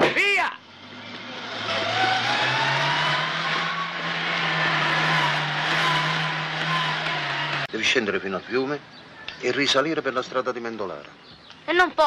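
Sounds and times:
small car engine pulling away: 0.7s - 7.7s.

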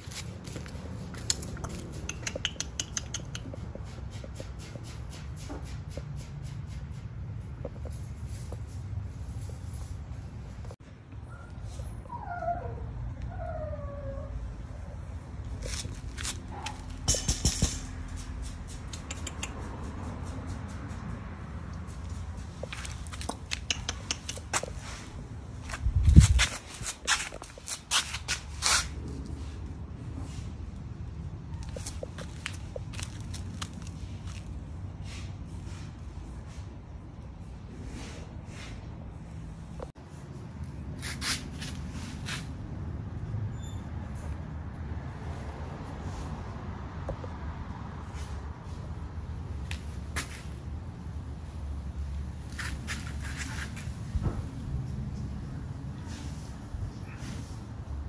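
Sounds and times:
puppy claws clicking on concrete: 0.0s - 8.6s, 15.4s - 24.9s, 25.6s - 29.4s, 31.5s - 34.6s
steady low rumble: 24.4s - 27.8s.

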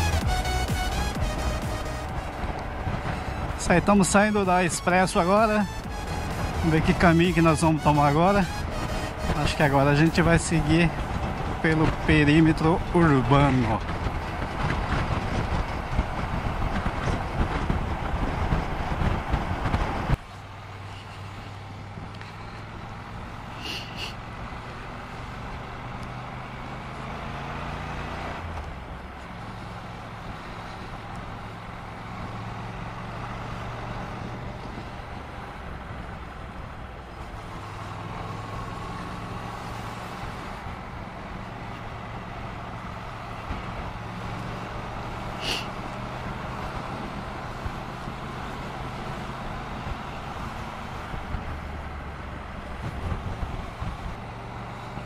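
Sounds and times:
road and wind noise: 0.0s - 55.0s.

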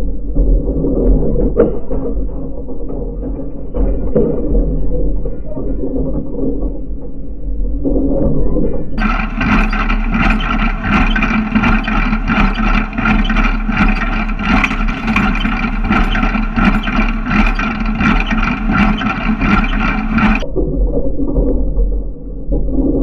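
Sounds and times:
baler mechanical hum: 9.0s - 20.4s
deep muffled rumble: 9.0s - 20.4s
rhythmic metallic clanks: 9.0s - 20.4s.

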